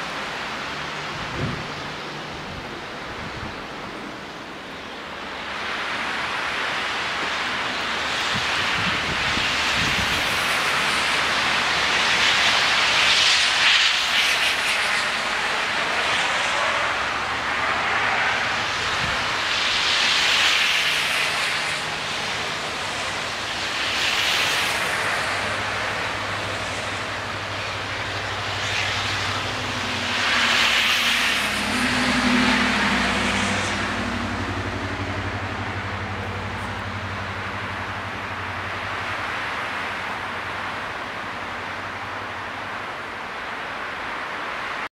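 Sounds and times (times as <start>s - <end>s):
steady rushing background: 0.0s - 44.9s
tyres hissing on snow: 5.4s - 34.8s.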